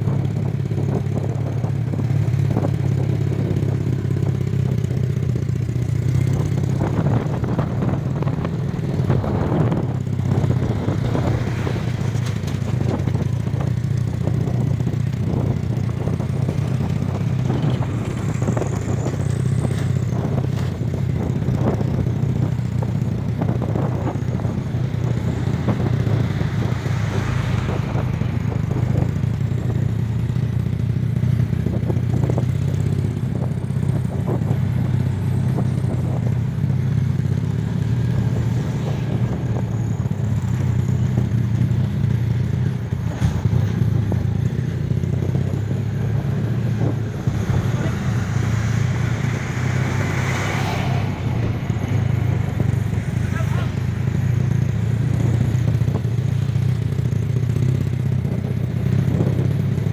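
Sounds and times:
road noise: 0.0s - 59.9s
small motorcycle engine droning: 0.0s - 59.9s
knocks from rough dirt road: 43.0s - 43.8s.

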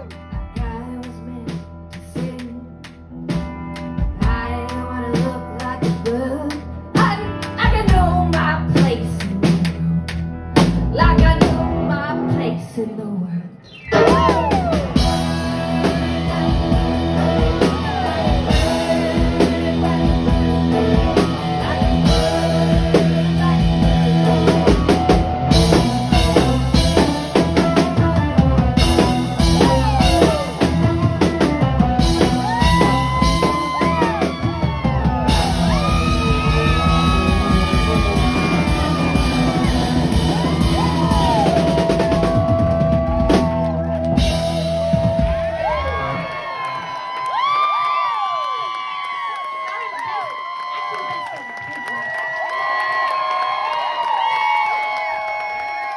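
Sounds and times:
rock band playing: 0.0s - 12.7s, 13.7s - 48.4s
amplified violin solo: 32.2s - 43.5s.

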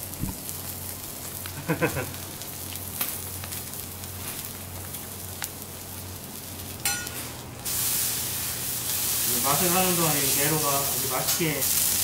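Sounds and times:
fish sizzling on a griddle: 0.0s - 12.0s
metal spatula clinks: 6.8s - 7.2s.

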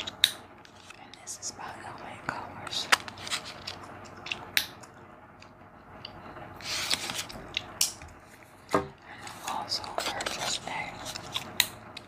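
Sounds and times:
plastic clicks and crinkles: 2.6s - 6.2s, 9.2s - 12.0s.

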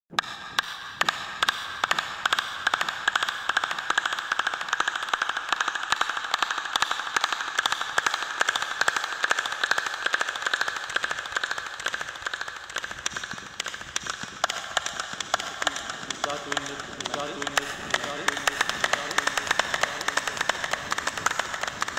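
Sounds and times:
fast hand clapping: 0.2s - 21.9s.

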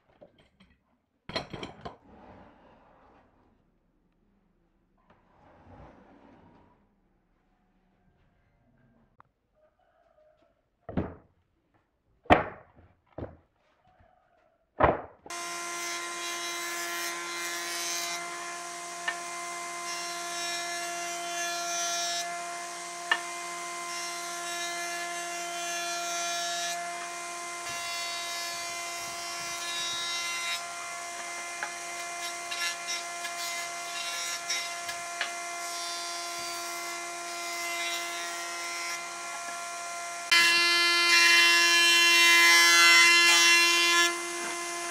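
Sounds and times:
wooden plank knocking on workbench: 10.9s - 11.3s, 12.3s - 13.4s, 14.8s - 15.2s
jointer-planer whining: 42.9s - 44.9s.

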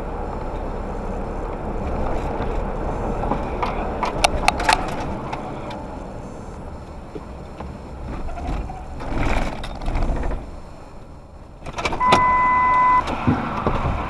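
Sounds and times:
road and engine noise: 0.0s - 14.0s
steady electronic beep: 12.0s - 13.0s.

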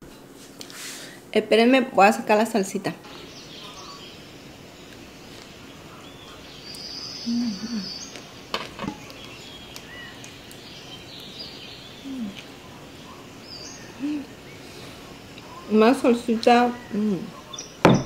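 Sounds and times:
bird chirps: 3.1s - 15.7s, 16.5s - 18.0s
person humming while chewing: 7.3s - 8.0s, 12.0s - 12.5s.

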